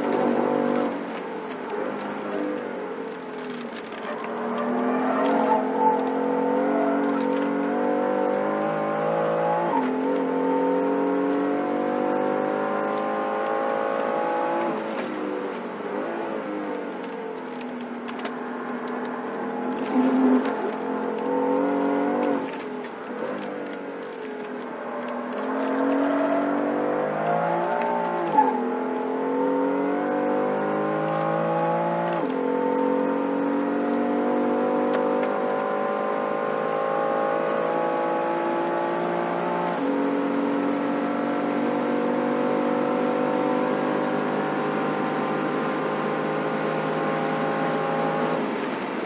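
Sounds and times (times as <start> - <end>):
car engine accelerating hard: 0.0 - 49.0
exhaust crack on upshift: 12.9 - 28.6.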